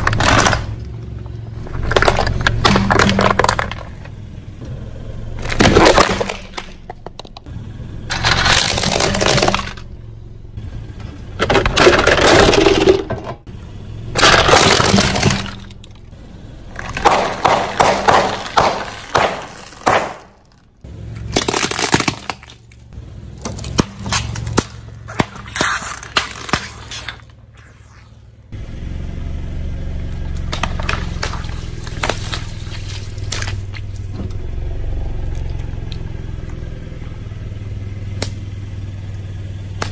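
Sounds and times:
objects crunching under tyres: 0:00.0 - 0:10.0, 0:10.6 - 0:13.5, 0:14.1 - 0:28.3, 0:30.0 - 0:37.6
car engine running: 0:00.0 - 0:39.9
sharp crackles: 0:16.7 - 0:28.4, 0:30.3 - 0:34.2.

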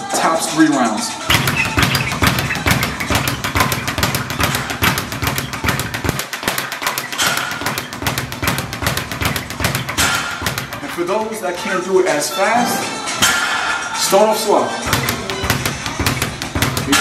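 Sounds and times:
speed bag punched rapidly: 0:01.3 - 0:11.4, 0:14.9 - 0:17.0.

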